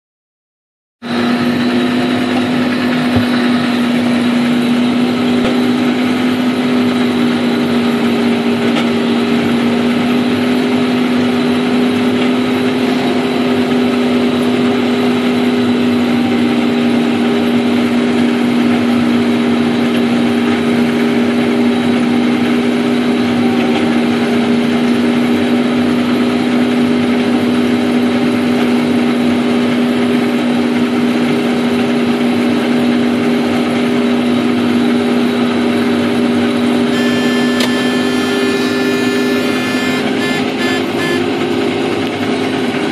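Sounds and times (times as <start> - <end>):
tractor engine droning: 1.0 - 42.9.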